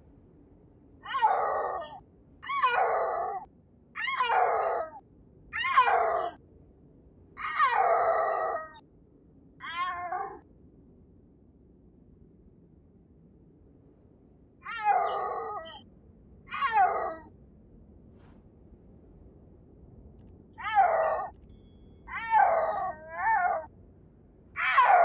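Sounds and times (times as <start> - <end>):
snow leopard yowling: 1.0 - 5.0, 5.6 - 6.4, 7.4 - 8.8, 9.6 - 10.4, 14.6 - 15.8, 16.5 - 17.3, 20.6 - 21.3, 22.1 - 23.7, 24.6 - 25.0.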